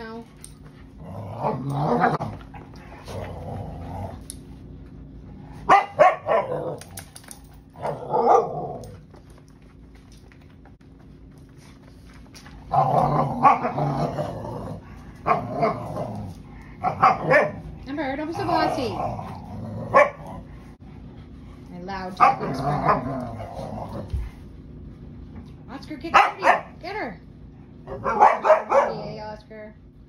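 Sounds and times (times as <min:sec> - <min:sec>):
dogs growling: 0:00.0 - 0:04.7, 0:06.2 - 0:09.2, 0:12.6 - 0:24.4
dogs barking: 0:05.6 - 0:06.8, 0:07.8 - 0:08.8, 0:16.8 - 0:17.7, 0:19.8 - 0:20.5, 0:22.2 - 0:23.1, 0:26.1 - 0:26.8, 0:27.9 - 0:29.1.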